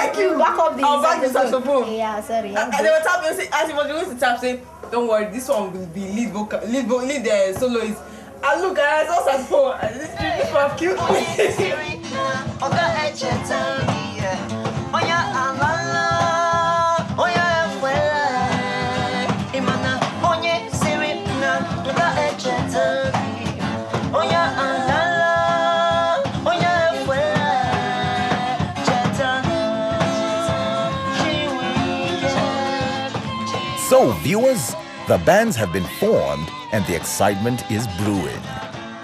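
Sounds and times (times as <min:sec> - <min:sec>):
man singing: 0:33.8 - 0:38.7.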